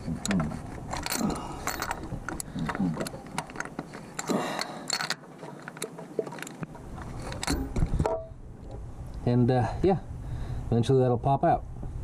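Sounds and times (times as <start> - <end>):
metal taps and scrapes: 0.0 - 8.8.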